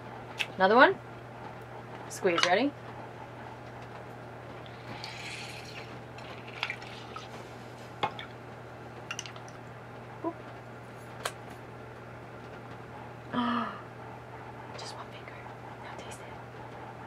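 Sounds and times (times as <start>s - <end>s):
faint steady hum: 0.0s - 17.0s
juice dripping into bowl: 4.6s - 7.4s, 8.0s - 9.7s.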